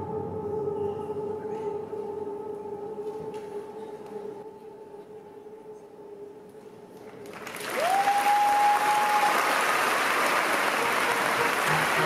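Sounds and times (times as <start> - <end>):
audience applause: 7.1 - 12.0.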